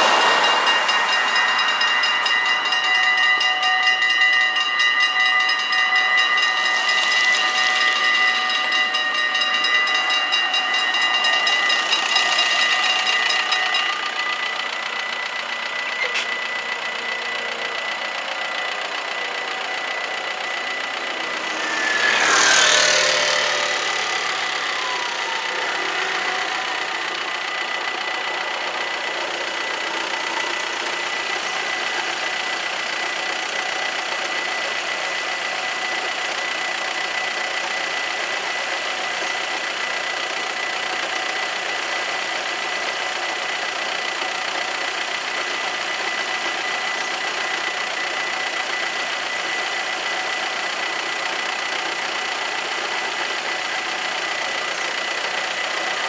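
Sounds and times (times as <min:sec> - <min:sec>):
road vehicle passing: 0:00.0 - 0:04.5, 0:05.5 - 0:31.0
level crossing bells ringing: 0:00.0 - 0:39.3.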